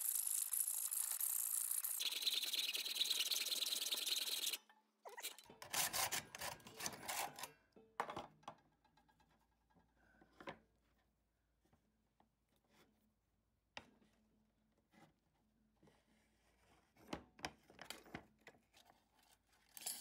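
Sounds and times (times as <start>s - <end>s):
hacksaw cutting metal: 0.0s - 7.5s.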